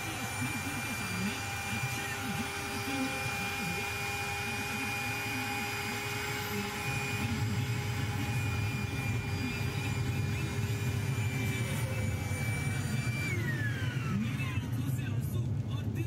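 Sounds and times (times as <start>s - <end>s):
electric air pump running: 0.0s - 14.6s.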